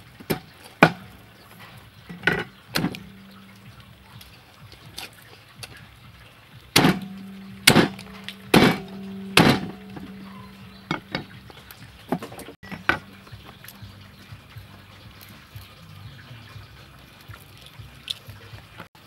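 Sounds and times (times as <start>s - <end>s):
cleaver chopping on wooden block: 6.8s - 10.3s.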